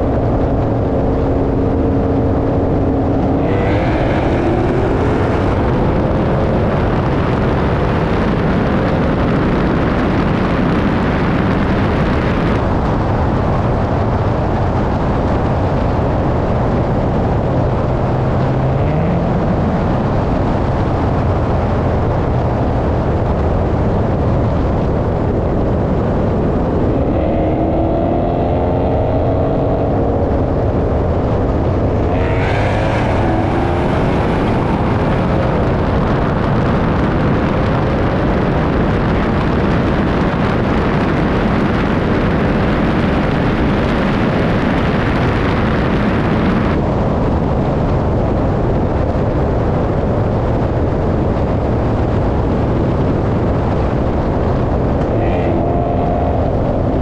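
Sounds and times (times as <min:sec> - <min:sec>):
car engines racing at full throttle: 0:00.0 - 0:57.0
loud steady rush of noise: 0:00.0 - 0:57.0.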